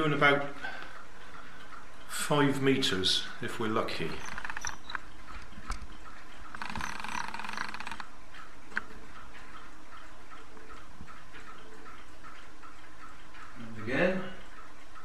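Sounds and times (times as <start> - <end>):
faint regular ticking: 0.0 - 15.0
plastic gears clicking and rattling: 4.1 - 5.0, 6.5 - 8.1.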